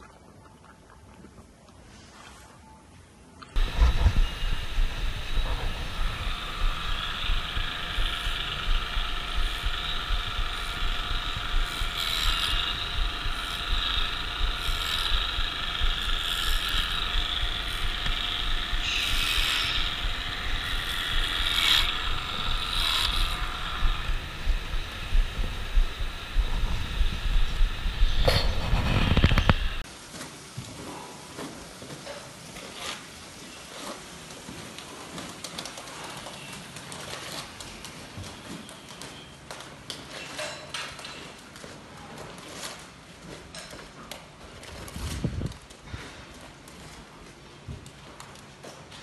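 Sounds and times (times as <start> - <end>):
electric clippers whining: 3.6 - 29.8.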